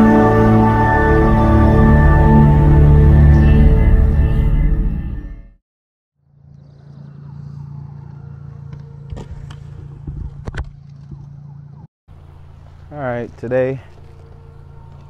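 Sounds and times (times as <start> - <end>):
music: 0.0 - 5.6
low mechanical hum: 6.2 - 15.0.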